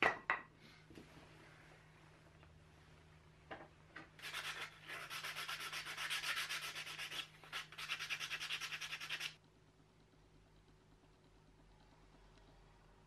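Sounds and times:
sandpaper scratching wood: 0:04.2 - 0:09.4.

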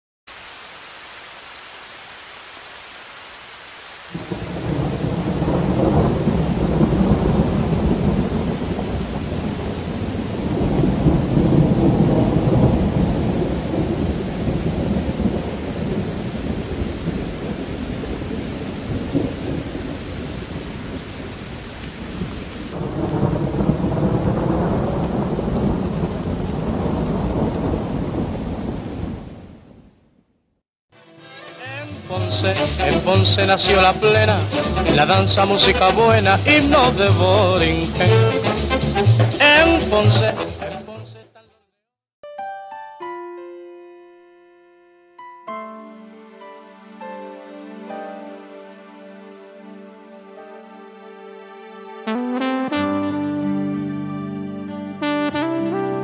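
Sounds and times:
steady hiss of rain: 0:00.3 - 0:30.2, 0:31.9 - 0:40.4
thunder rumbling: 0:04.2 - 0:30.1.

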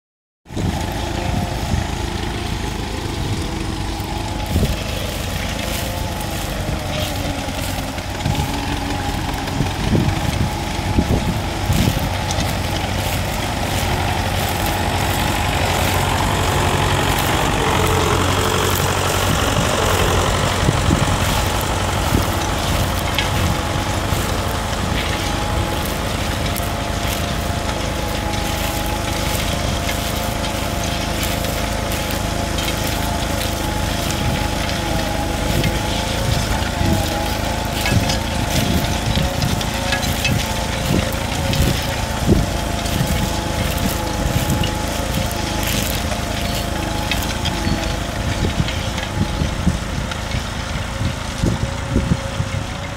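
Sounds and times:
tractor engine running under load: 0:00.4 - 0:52.9.

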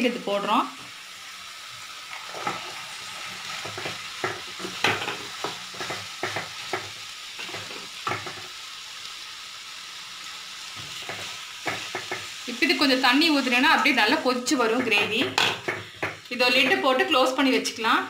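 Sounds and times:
food sizzling: 0:00.0 - 0:18.0
spatula scraping a pan: 0:02.2 - 0:08.4.

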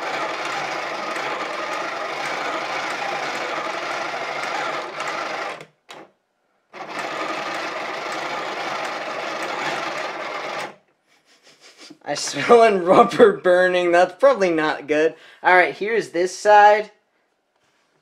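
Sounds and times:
small electric motor running: 0:00.0 - 0:05.7, 0:06.8 - 0:10.8.

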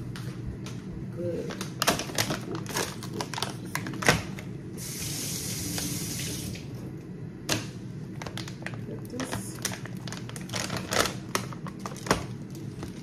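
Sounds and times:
water running from faucet: 0:04.8 - 0:06.6.

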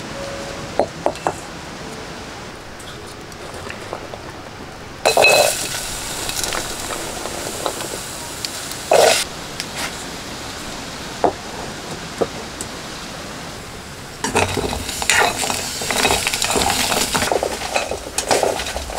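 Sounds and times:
seeds sizzling in pan: 0:05.0 - 0:09.3, 0:14.2 - 0:18.8
seeds clattering into pan: 0:05.1 - 0:07.9.

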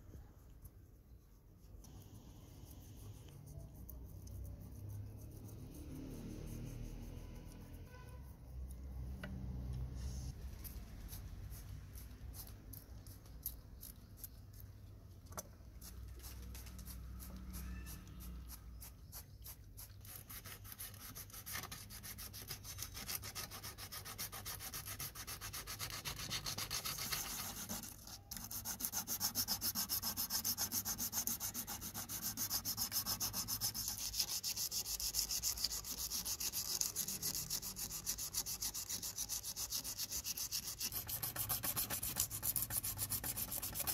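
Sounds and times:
toothbrush scrubbing metal: 0:15.7 - 0:43.9
sandpaper on metal: 0:15.8 - 0:43.9.

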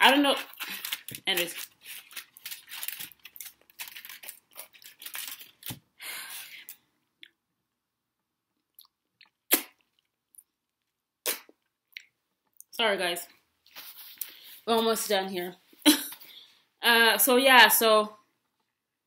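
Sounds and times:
wrapper rustling and crinkling: 0:00.0 - 0:05.9.

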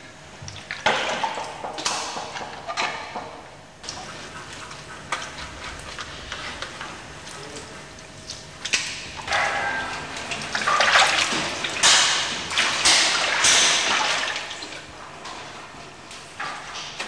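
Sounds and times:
liquid splashing and running: 0:08.2 - 0:15.0.

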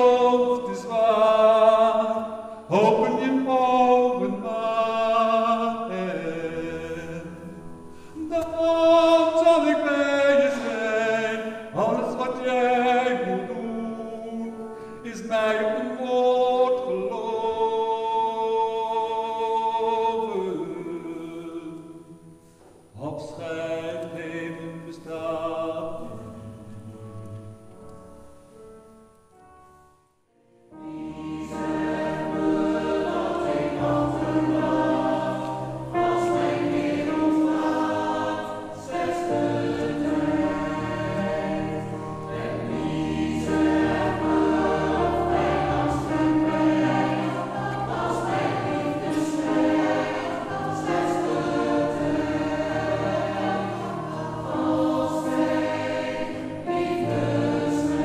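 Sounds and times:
man singing slow song: 0:00.0 - 0:22.2, 0:22.9 - 0:27.0
choir singing: 0:00.0 - 0:27.6, 0:30.7 - 0:58.0
musical accompaniment: 0:23.6 - 0:58.0.

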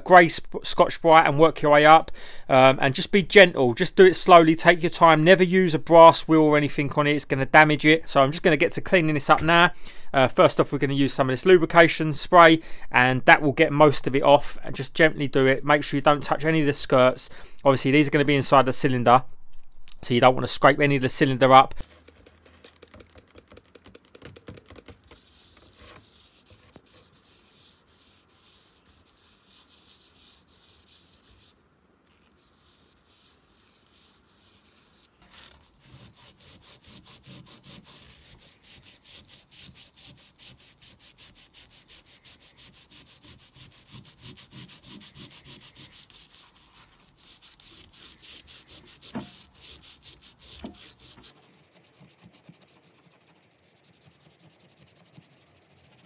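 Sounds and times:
abrasive pad scrubbing metal: 0:25.1 - 0:56.0.

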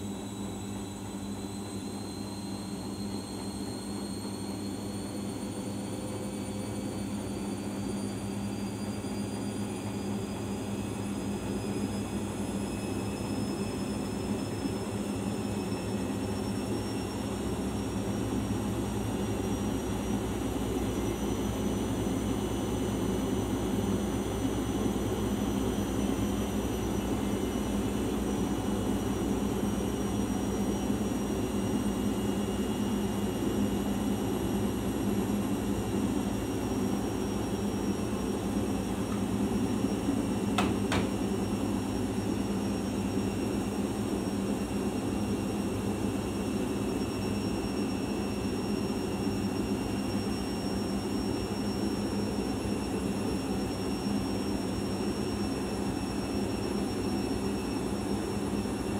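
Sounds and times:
washing machine running: 0:00.0 - 0:58.9
washing machine clicks: 0:40.5 - 0:41.3.

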